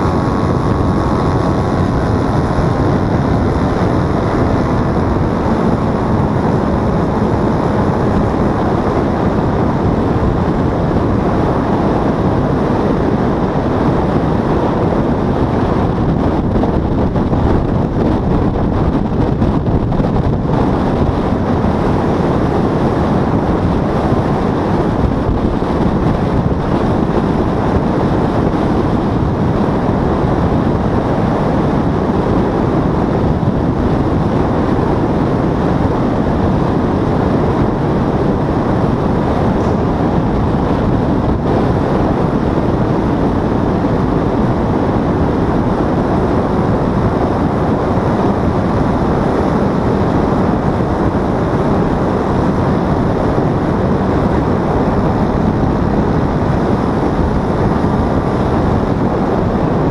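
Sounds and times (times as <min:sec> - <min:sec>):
paramotor engine and propeller: 0:00.0 - 0:59.9
wind buffeting on microphone: 0:00.0 - 0:59.9.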